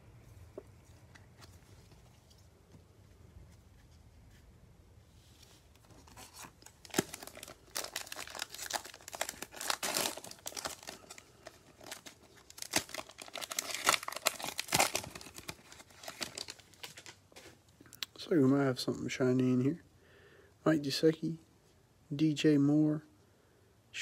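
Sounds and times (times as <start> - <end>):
plastic wrapper tearing and crinkling: 5.8 - 17.2.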